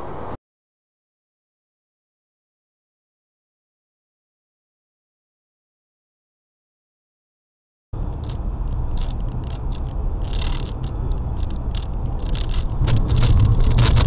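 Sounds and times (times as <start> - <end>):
car engine and tyre drone: 8.0 - 14.0.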